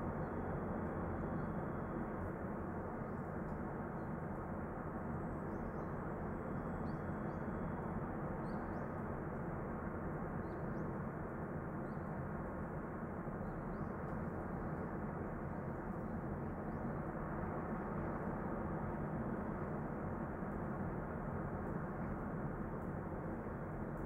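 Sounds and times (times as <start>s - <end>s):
faint bird chirps: 8.4s - 9.0s.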